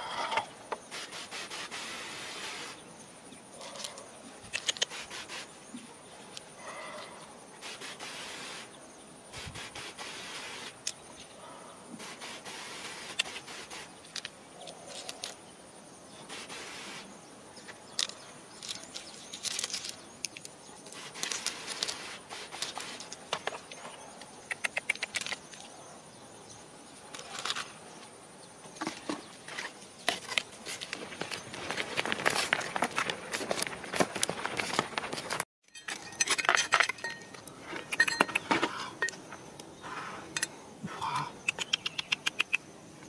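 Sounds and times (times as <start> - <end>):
soil and pebbles rustling: 0.0 - 15.5, 16.2 - 24.3, 27.0 - 40.6
spray bottle spritzes: 0.9 - 2.8, 4.6 - 5.5, 7.6 - 8.7, 9.3 - 10.8, 12.0 - 14.0, 16.3 - 17.1, 20.9 - 23.2.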